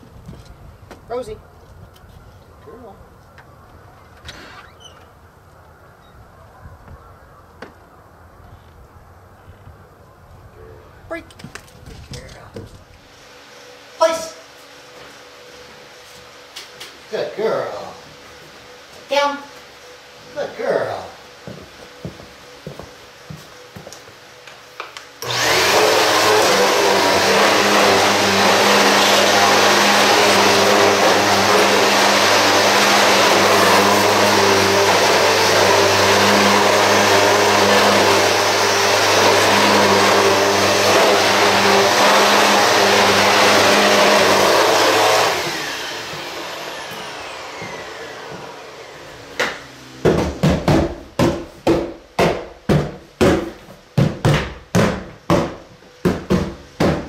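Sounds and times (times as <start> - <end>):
vacuum cleaner running: 13.0 - 50.7.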